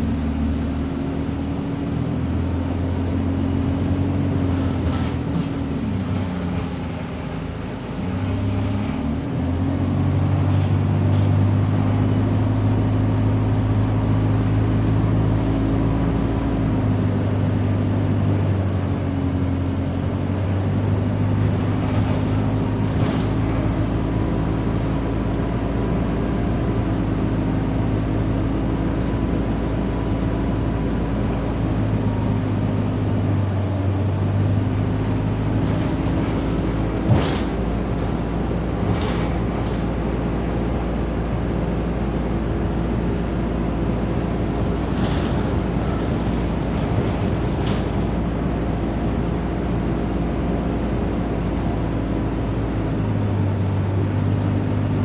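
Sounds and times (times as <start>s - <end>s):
bus engine and cooling fan drone: 0.0s - 55.0s.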